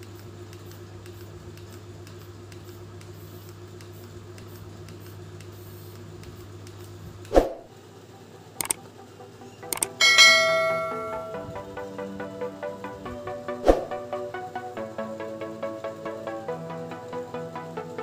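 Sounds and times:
faint clicks: 0:08.6 - 0:08.8
faint regular ticking: 0:09.7 - 0:10.0.

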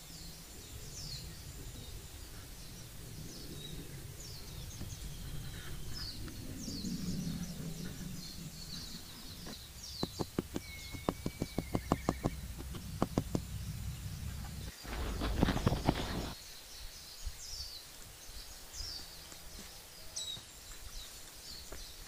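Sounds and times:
birds chirping: 0:00.0 - 0:22.0
rapid sharp knocks: 0:10.0 - 0:13.4.

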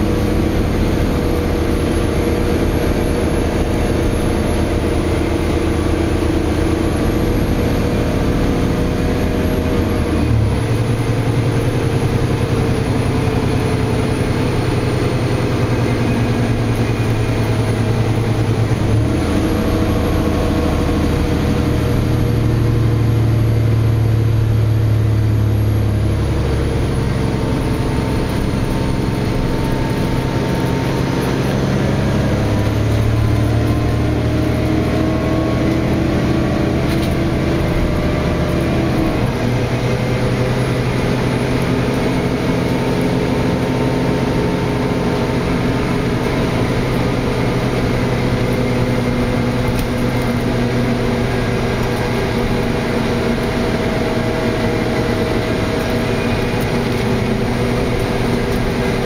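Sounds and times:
bus engine hum: 0:00.0 - 0:59.0
road and tyre noise: 0:00.0 - 0:59.0.

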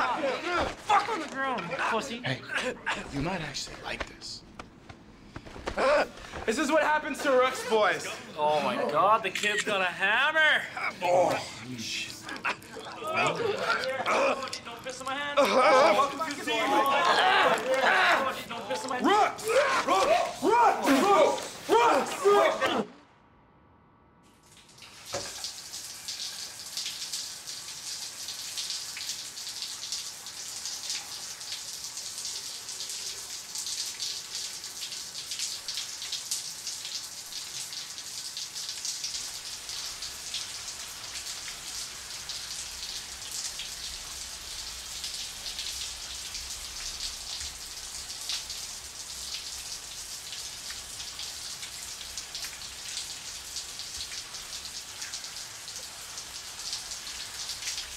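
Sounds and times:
shower water spraying on tiles: 0:24.4 - 0:57.9.

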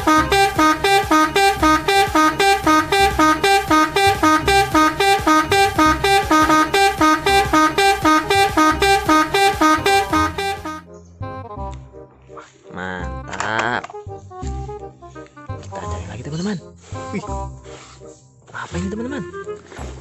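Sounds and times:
bright plucked music: 0:00.0 - 0:10.8.

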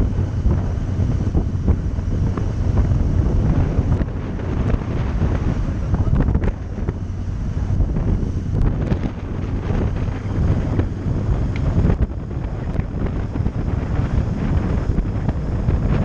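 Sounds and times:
motorcycle engine running: 0:00.0 - 0:16.0
wind rush on microphone: 0:00.0 - 0:16.0.

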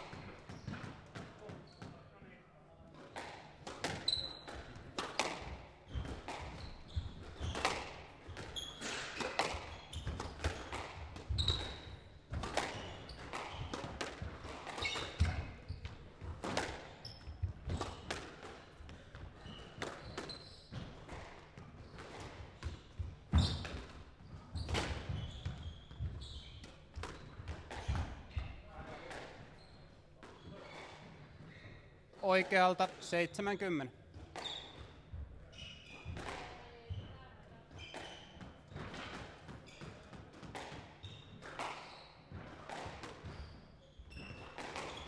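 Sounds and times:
squash ball hitting rackets and walls: 0:00.0 - 0:02.0, 0:02.9 - 0:33.0, 0:34.0 - 0:37.0, 0:37.7 - 0:45.0
shoes squeaking on wooden floor: 0:05.9 - 0:07.8, 0:08.4 - 0:10.7, 0:11.3 - 0:12.1, 0:14.8 - 0:16.0, 0:22.6 - 0:28.4.

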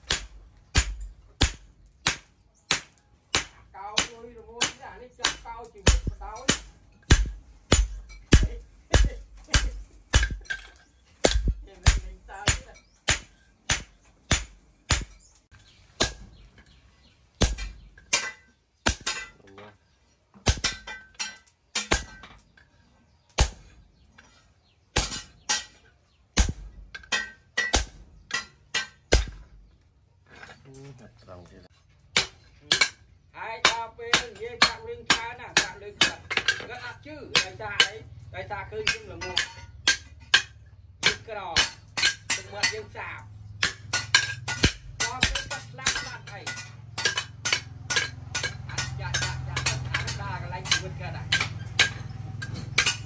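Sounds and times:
hammer striking metal on anvil: 0:00.0 - 0:15.4, 0:20.4 - 0:22.3, 0:26.4 - 0:29.5, 0:32.1 - 0:33.0, 0:38.8 - 0:43.0, 0:43.6 - 0:53.0.

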